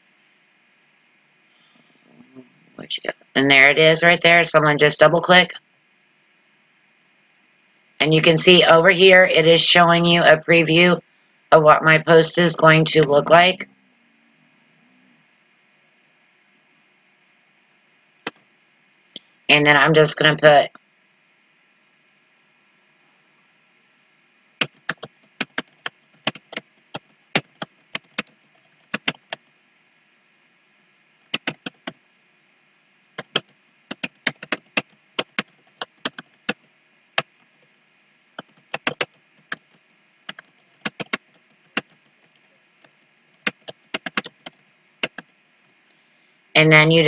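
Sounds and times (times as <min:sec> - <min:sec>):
keyboard keys clicking: 0:24.6 - 0:29.4, 0:31.3 - 0:32.0, 0:33.2 - 0:36.6, 0:38.4 - 0:45.2.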